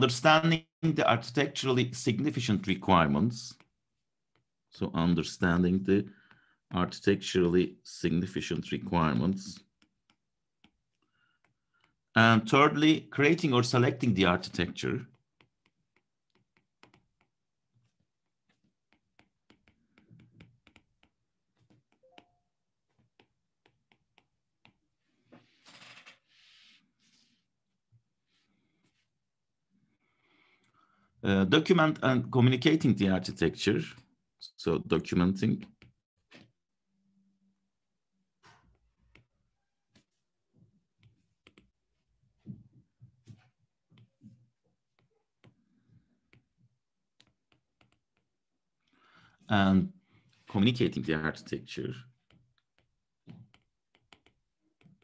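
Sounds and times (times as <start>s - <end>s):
stylus tapping on tablet screen: 15.0s - 24.9s, 41.0s - 41.8s, 42.4s - 48.4s, 52.2s - 55.0s.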